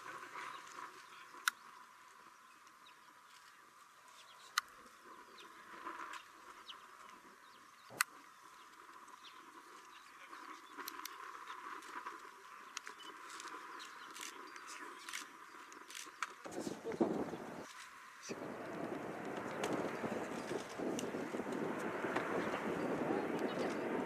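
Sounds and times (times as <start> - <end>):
sharp clicks: 7.9 - 8.2.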